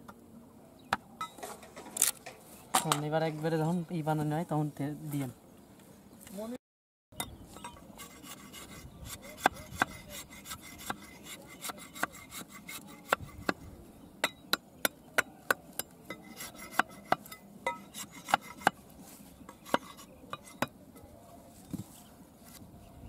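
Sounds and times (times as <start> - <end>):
knife scraping bamboo: 7.5 - 13.6, 15.7 - 20.8.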